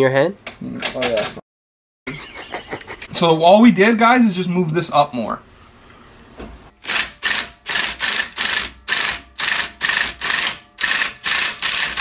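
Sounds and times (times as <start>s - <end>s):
ratchet wrench clicking: 6.8s - 12.0s.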